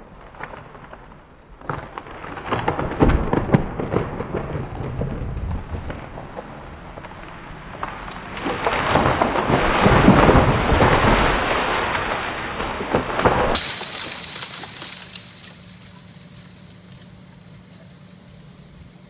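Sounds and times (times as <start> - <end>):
tree cracking and crashing down: 0.0 - 19.0.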